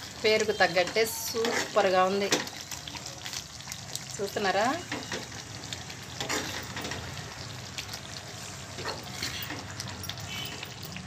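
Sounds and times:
gravy sizzling: 0:00.0 - 0:11.0
spatula scraping a pan: 0:00.4 - 0:01.9, 0:06.2 - 0:07.0, 0:08.8 - 0:09.6.

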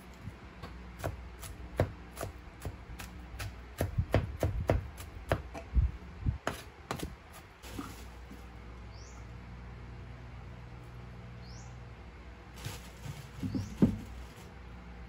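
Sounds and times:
knife chopping on a wooden board: 0:00.6 - 0:05.7, 0:06.4 - 0:07.2.

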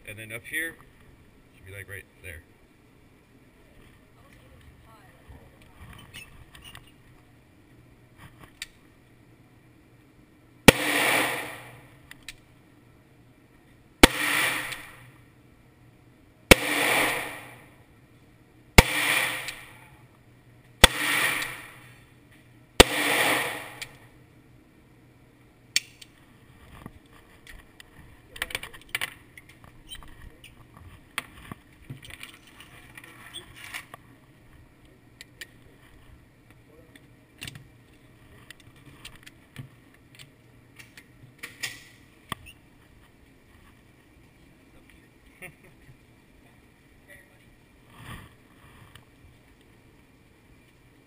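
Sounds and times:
handgun shots echoing: 0:10.7 - 0:11.8, 0:14.0 - 0:15.1, 0:16.5 - 0:17.6, 0:18.8 - 0:19.8, 0:20.8 - 0:21.9, 0:22.8 - 0:24.0
pistol click and metallic rattling: 0:14.3 - 0:14.9, 0:25.8 - 0:26.2.

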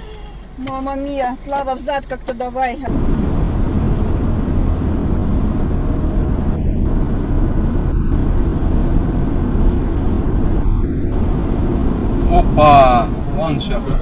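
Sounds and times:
car road and engine rumble: 0:00.0 - 0:14.0.

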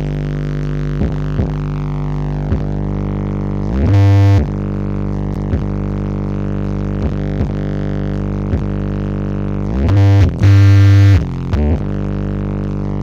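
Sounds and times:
bass-heavy music from speakers: 0:00.0 - 0:13.0.

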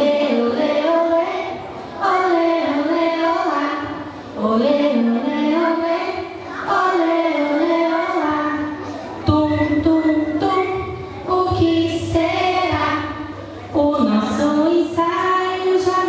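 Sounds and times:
voices singing a slow song: 0:00.0 - 0:16.0.

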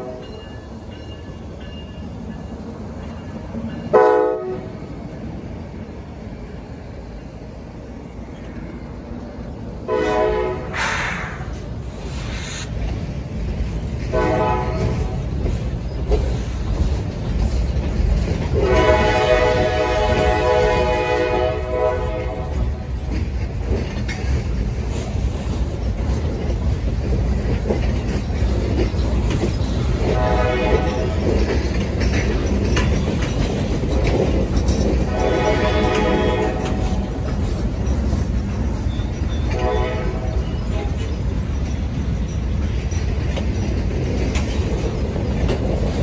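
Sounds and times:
freight train wheels clattering: 0:00.0 - 0:46.0
train air horn blasts: 0:03.9 - 0:04.7, 0:09.9 - 0:11.5, 0:14.1 - 0:15.2, 0:18.6 - 0:22.7, 0:30.0 - 0:31.2, 0:35.0 - 0:37.0, 0:39.5 - 0:40.9.

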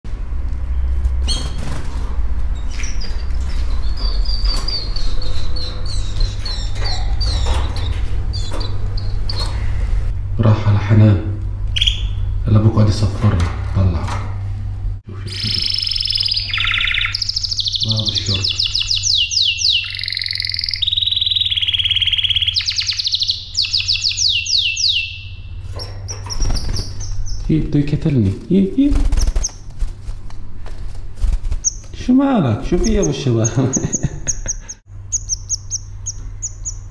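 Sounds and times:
steady low rumble: 0:00.1 - 0:19.3
steady low hum: 0:00.1 - 0:36.9
canaries chirping: 0:02.5 - 0:09.9, 0:11.8 - 0:12.4, 0:15.2 - 0:27.9, 0:31.6 - 0:31.9, 0:32.6 - 0:36.9.

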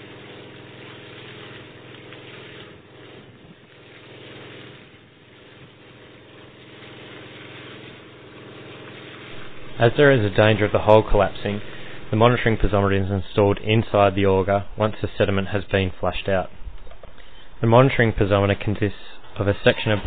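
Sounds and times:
drill rig engine humming: 0:00.0 - 0:14.8.

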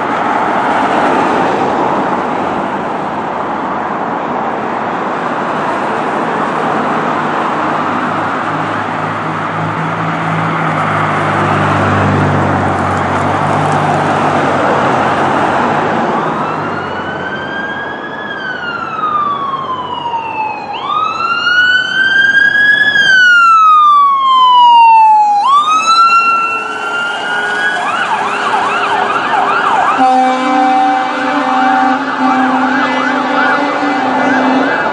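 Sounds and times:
road traffic passing: 0:00.0 - 0:34.9
ambulance siren wailing and yelping: 0:14.3 - 0:34.9.

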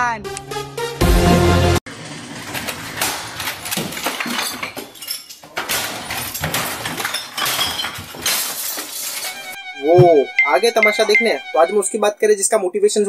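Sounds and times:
household objects smashing: 0:01.9 - 0:11.4.

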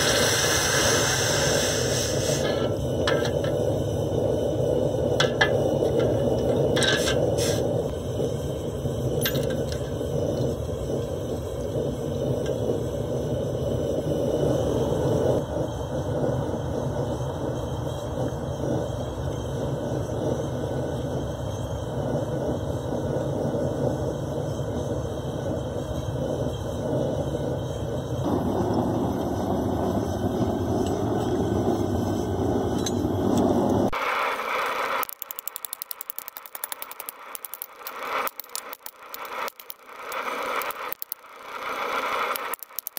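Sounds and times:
forge burner roaring: 0:00.0 - 0:42.9.

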